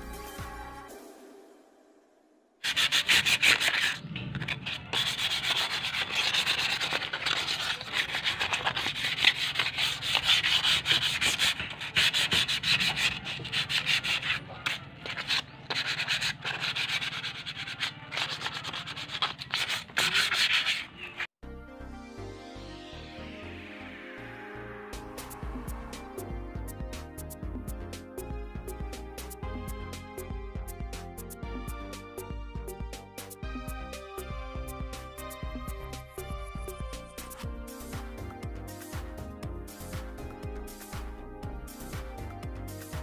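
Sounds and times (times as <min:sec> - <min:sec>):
sanding scraping on metal pipe: 0:02.6 - 0:21.3.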